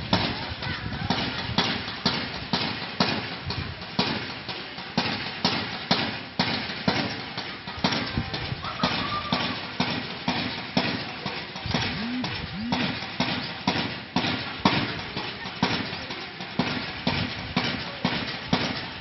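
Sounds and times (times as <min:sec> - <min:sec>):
sharp drill-cadence strikes: 0:11.8 - 0:14.4.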